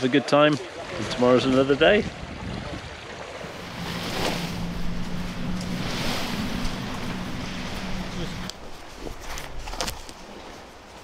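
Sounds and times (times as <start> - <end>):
waves lapping on shingle: 0.0 - 11.0
wind on microphone: 1.7 - 10.2
low hum: 3.5 - 9.6.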